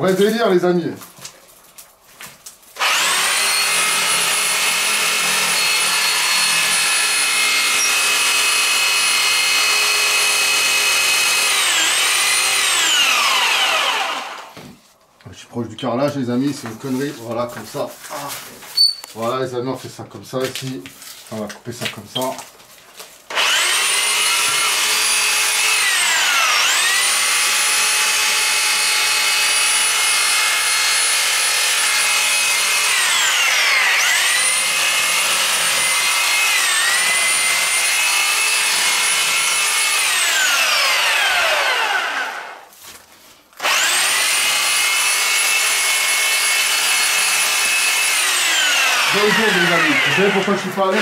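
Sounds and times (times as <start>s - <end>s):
reciprocating saw cutting branches: 2.8s - 14.6s, 23.3s - 42.7s, 43.6s - 51.0s.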